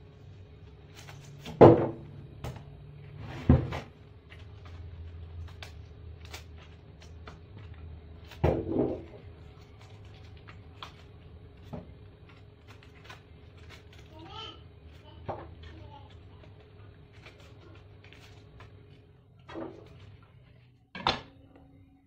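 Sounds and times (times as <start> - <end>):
low steady hum: 0.0 - 22.0
knife cutting lettuce: 4.4 - 14.4, 15.2 - 19.0.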